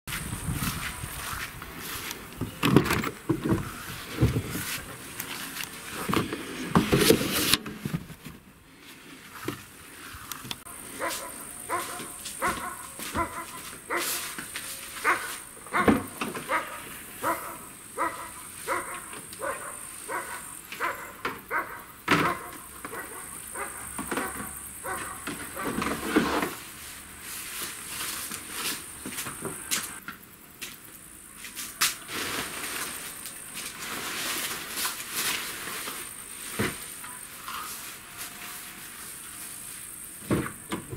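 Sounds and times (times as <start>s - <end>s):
knocks and rustling: 0.1s - 8.5s, 11.0s - 16.7s
dog barking: 11.0s - 14.2s, 15.0s - 25.7s.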